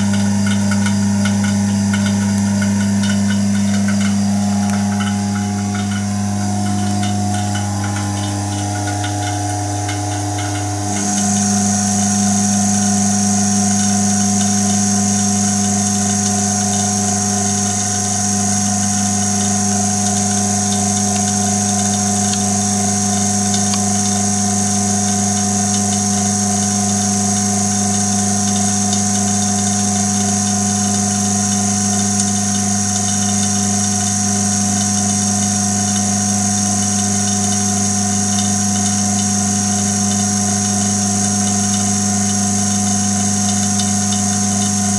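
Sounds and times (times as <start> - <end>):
fast low pulsing: 0.0 - 27.4
thin high whine: 0.0 - 44.9
vacuum pump steady hum: 0.0 - 44.9.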